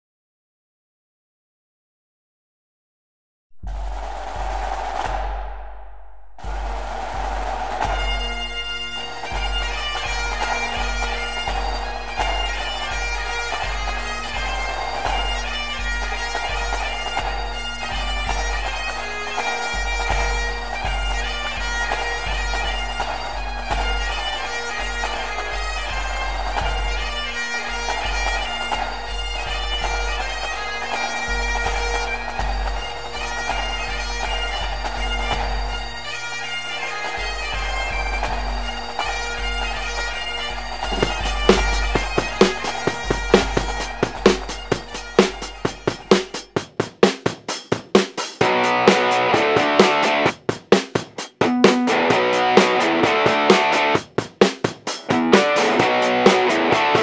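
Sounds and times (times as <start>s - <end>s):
bagpipe melody over drones: 7.6s - 46.6s, 48.4s - 50.3s, 55.1s - 57.0s.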